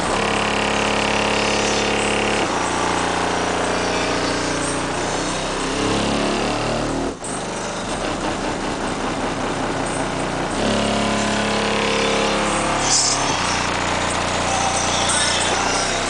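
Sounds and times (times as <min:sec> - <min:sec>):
deep bass from subwoofers: 0:00.0 - 0:16.0.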